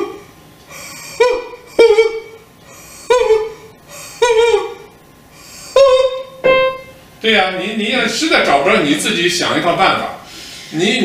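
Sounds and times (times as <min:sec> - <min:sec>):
woman singing staccato notes: 0:06.4 - 0:07.0.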